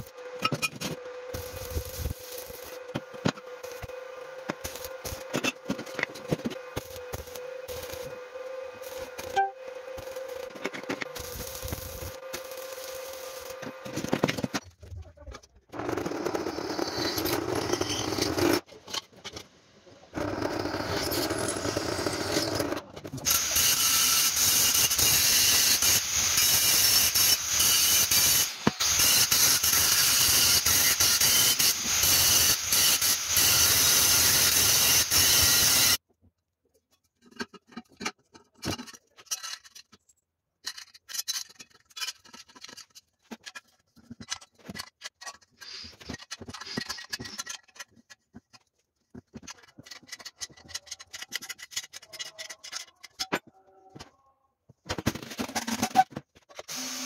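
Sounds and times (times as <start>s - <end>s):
stick welding crackling: 1.3s - 8.2s, 8.8s - 14.3s
angle grinder grinding steel: 20.2s - 36.0s
metal parts clicking: 37.3s - 40.0s, 40.6s - 48.6s, 49.4s - 53.5s.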